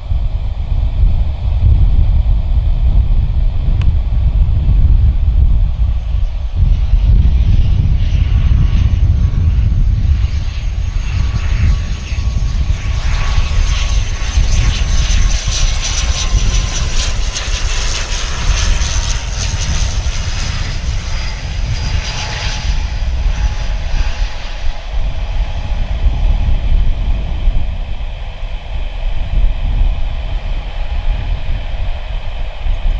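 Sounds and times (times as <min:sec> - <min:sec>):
turboprop airliner passing: 0:00.0 - 0:32.9.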